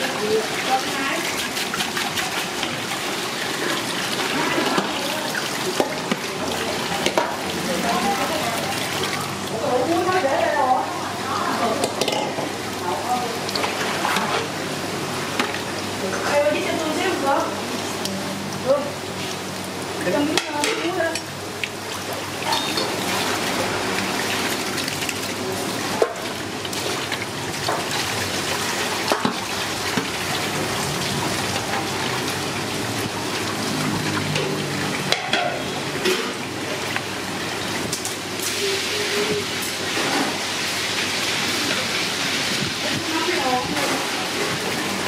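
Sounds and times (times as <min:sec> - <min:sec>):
tap running into basin: 0:00.0 - 0:10.3, 0:15.3 - 0:16.4, 0:19.2 - 0:38.4
water sloshing in metal basin: 0:00.0 - 0:10.4, 0:19.2 - 0:45.0.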